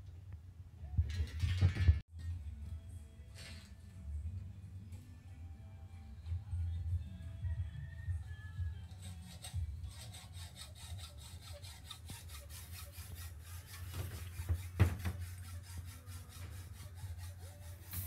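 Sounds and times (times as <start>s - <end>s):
hacksaw cutting metal: 8.9s - 18.0s.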